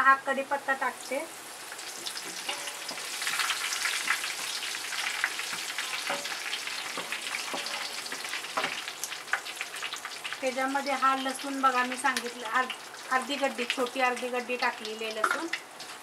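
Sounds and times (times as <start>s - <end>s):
leaves sizzling in hot oil: 0.0s - 16.0s
spatula stirring in metal pot: 2.1s - 8.8s.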